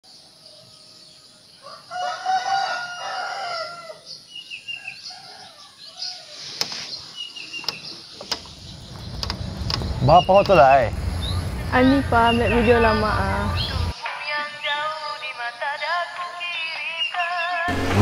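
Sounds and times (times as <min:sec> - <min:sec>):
rooster crowing: 0:01.6 - 0:04.1
high bird chirps: 0:06.8 - 0:14.0.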